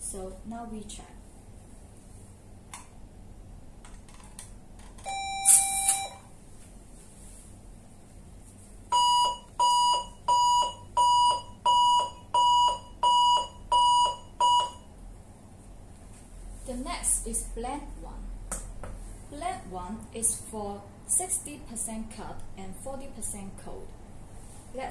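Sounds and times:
activation tone: 0:05.1 - 0:06.2
alarm beeps: 0:05.1 - 0:06.2, 0:08.9 - 0:14.9.

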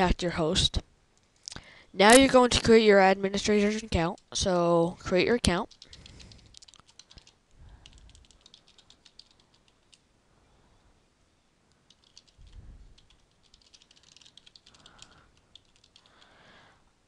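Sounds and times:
faint keyboard typing: 0:03.4 - 0:04.6, 0:05.5 - 0:10.1, 0:11.7 - 0:16.4.

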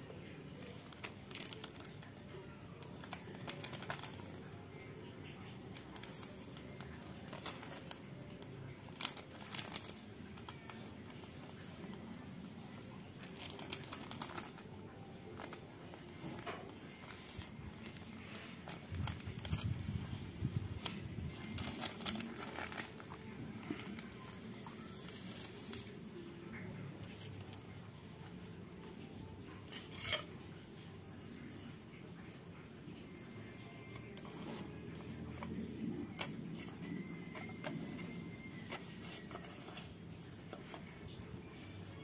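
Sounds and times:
plastic bag crinkling and tearing: 0:00.3 - 0:27.6.

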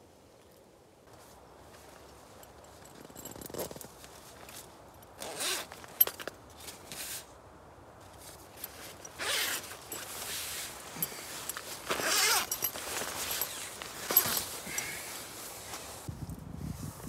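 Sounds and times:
zipper pulled open: 0:02.9 - 0:04.0, 0:05.2 - 0:06.2, 0:08.6 - 0:16.0
fabric rustling: 0:08.2 - 0:16.1.

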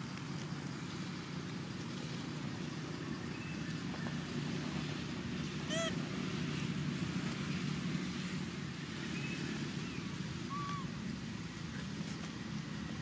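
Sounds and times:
low outdoor rumble: 0:00.0 - 0:13.0
faint high calls: 0:05.5 - 0:06.1, 0:09.9 - 0:11.0.

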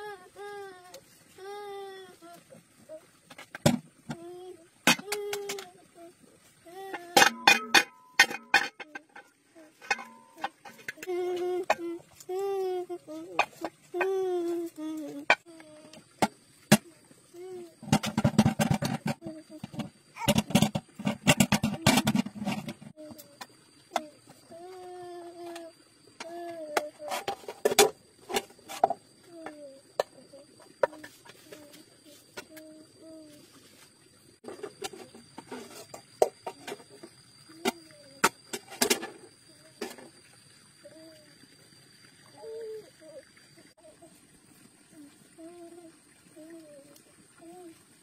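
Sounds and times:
small child's voice: 0:00.0 - 0:03.2, 0:04.0 - 0:16.2, 0:16.8 - 0:18.0, 0:19.0 - 0:20.4, 0:23.0 - 0:27.5, 0:29.2 - 0:33.7, 0:37.5 - 0:38.3, 0:39.5 - 0:40.1, 0:40.8 - 0:41.4, 0:42.3 - 0:48.0
metal pots and lids clattering: 0:07.1 - 0:11.0, 0:17.8 - 0:22.9
stick beating metal cooking pot: 0:07.2 - 0:09.2, 0:09.8 - 0:10.8.

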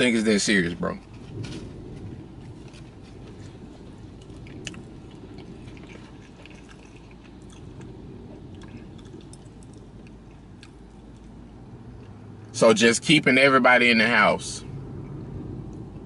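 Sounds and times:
low steady hum: 0:00.0 - 0:16.0
man chewing food: 0:02.0 - 0:12.2.

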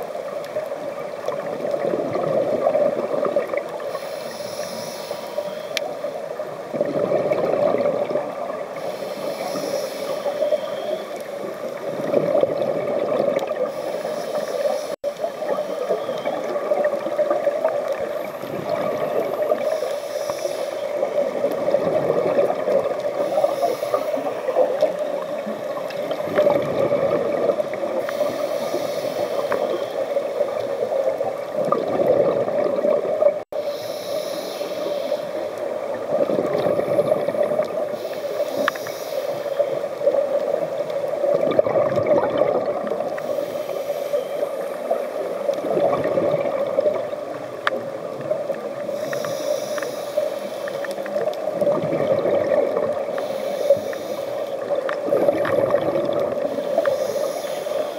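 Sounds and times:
regulator inhale hiss: 0:03.8 - 0:06.5, 0:08.7 - 0:12.1, 0:13.6 - 0:17.0, 0:17.9 - 0:21.6, 0:22.9 - 0:26.2, 0:27.9 - 0:31.0, 0:33.4 - 0:35.8, 0:36.8 - 0:40.6, 0:43.0 - 0:45.6, 0:48.6 - 0:51.4, 0:53.0 - 0:55.6, 0:56.3 - 0:57.9.

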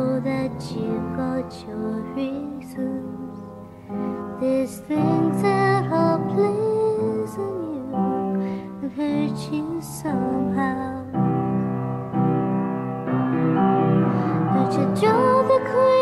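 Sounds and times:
person singing: 0:00.0 - 0:03.3, 0:04.2 - 0:11.3, 0:14.2 - 0:16.0
slow piano: 0:00.0 - 0:16.0.

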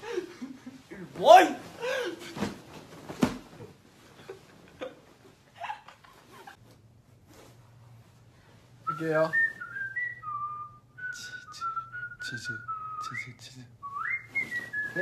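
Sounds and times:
person whistling a tune: 0:08.9 - 0:15.0.

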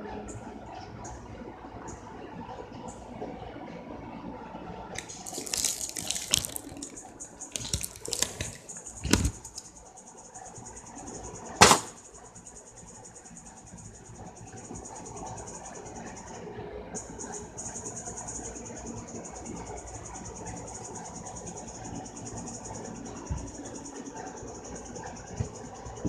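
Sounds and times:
rustling and scraping: 0:05.0 - 0:09.7.

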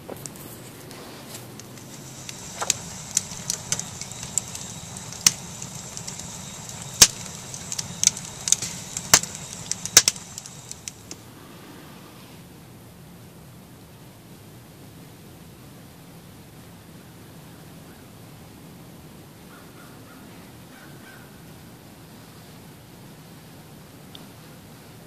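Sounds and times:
wood fire crackling: 0:00.0 - 0:11.3.

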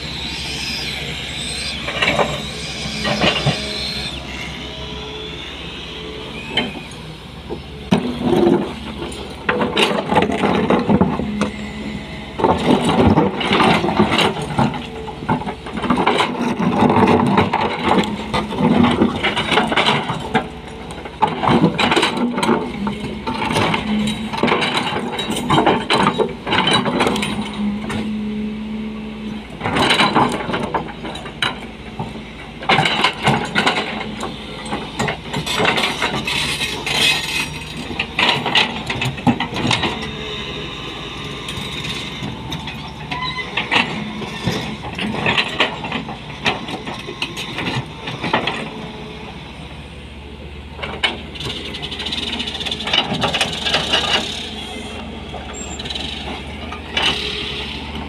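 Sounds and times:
excavator diesel engine running: 0:00.0 - 0:58.0.

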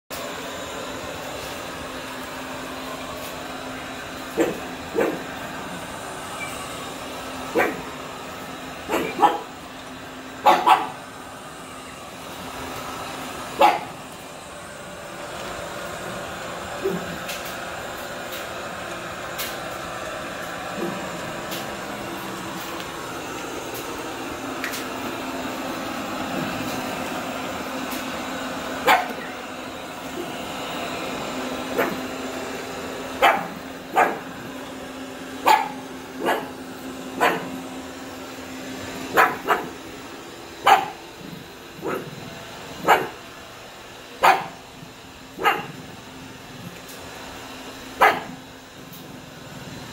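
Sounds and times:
robot vacuum cleaner humming: 0:00.1 - 0:49.9
dog barking: 0:04.3 - 0:05.3, 0:07.5 - 0:07.9, 0:08.9 - 0:09.5, 0:10.4 - 0:11.0, 0:13.6 - 0:14.0, 0:28.8 - 0:29.3, 0:31.7 - 0:32.0, 0:33.2 - 0:34.3, 0:35.4 - 0:36.6, 0:37.2 - 0:37.6, 0:39.1 - 0:39.8, 0:40.6 - 0:41.0, 0:41.8 - 0:42.2, 0:42.8 - 0:43.2, 0:44.2 - 0:44.6, 0:45.4 - 0:45.8, 0:48.0 - 0:48.4.

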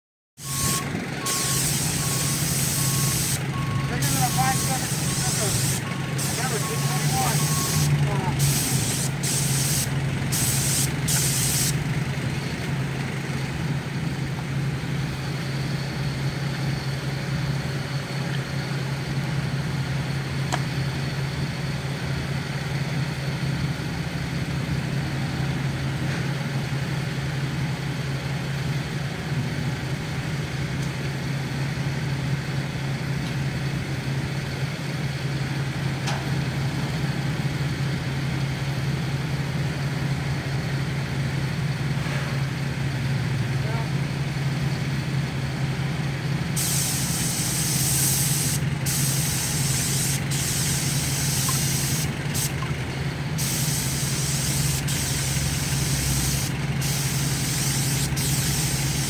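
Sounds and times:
paint spray gun hissing: 0:00.4 - 0:11.9, 0:46.6 - 0:52.8, 0:53.4 - 0:59.0
engine hum: 0:00.4 - 0:59.0.

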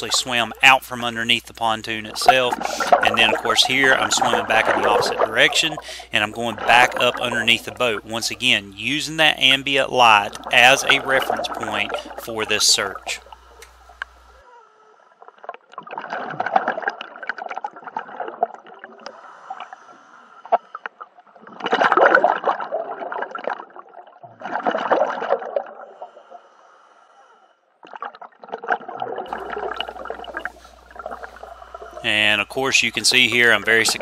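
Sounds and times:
underwater exhaled breath bubbling: 0:02.2 - 0:07.6, 0:10.3 - 0:12.2, 0:28.0 - 0:32.2.

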